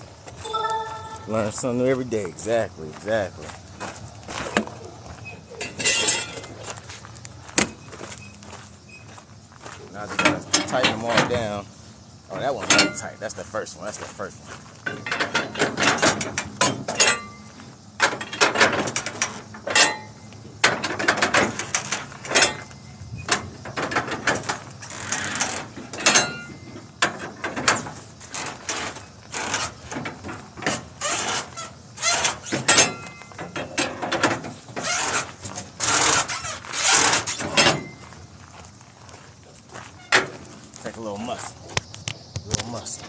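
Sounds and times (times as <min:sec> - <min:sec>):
strap winch ratcheting clicks: 0:34.8 - 0:37.8.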